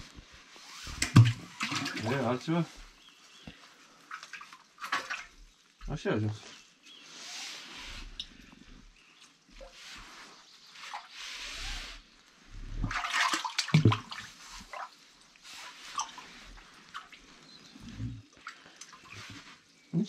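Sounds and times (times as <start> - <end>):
water sloshing and splashing: 0.0 - 19.9.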